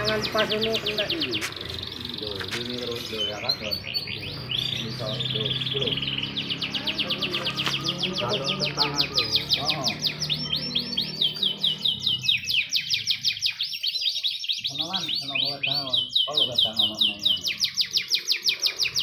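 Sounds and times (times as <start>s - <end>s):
canaries singing trills: 0.0s - 19.0s.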